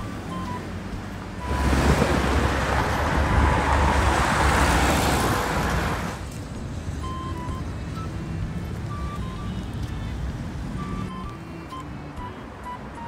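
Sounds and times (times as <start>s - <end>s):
vehicle passing close by: 0.3s - 9.2s.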